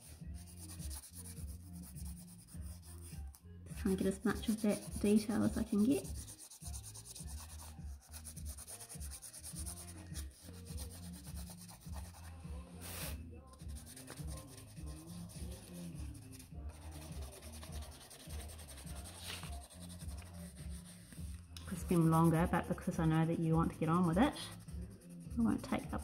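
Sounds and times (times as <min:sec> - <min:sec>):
pencil rubbing on paper: 0:00.0 - 0:22.5, 0:23.7 - 0:26.0.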